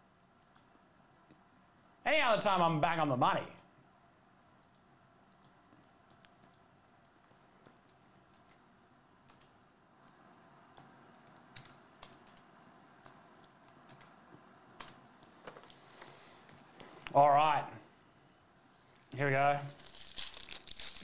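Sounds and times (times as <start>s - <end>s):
computer keyboard typing: 0.4s - 0.7s, 9.2s - 10.2s, 11.5s - 14.2s, 14.8s - 15.0s.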